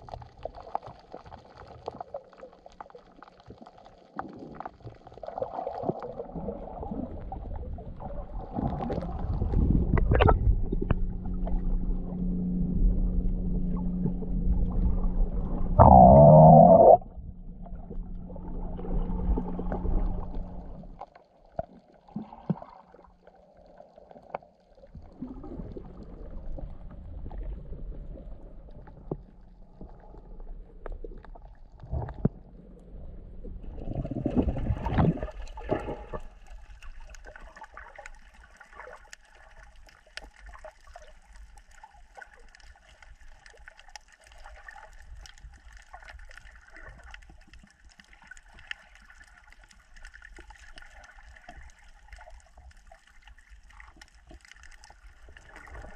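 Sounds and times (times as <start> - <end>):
muffled water gurgling and sloshing: 0.0 - 55.9
low hum: 7.4 - 21.0, 25.1 - 37.0.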